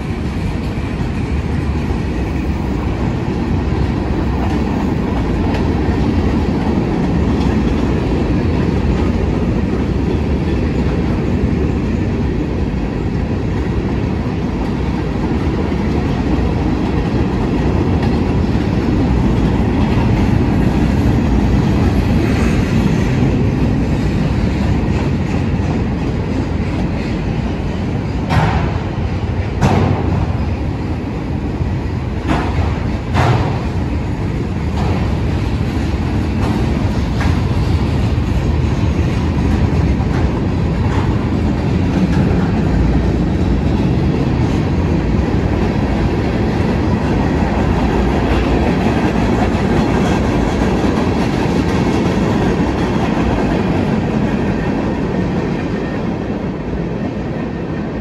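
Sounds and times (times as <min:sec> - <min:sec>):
wheels clacking over rail joints: 0:00.0 - 0:56.2
freight train rumbling past: 0:00.0 - 0:58.0
sharp metallic knocks: 0:28.3 - 0:29.0, 0:29.6 - 0:30.3, 0:32.2 - 0:33.8.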